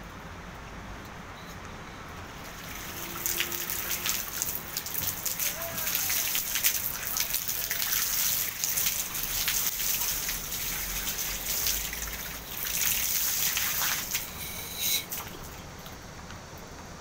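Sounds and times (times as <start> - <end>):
hose spraying on tiles: 2.4 - 15.5.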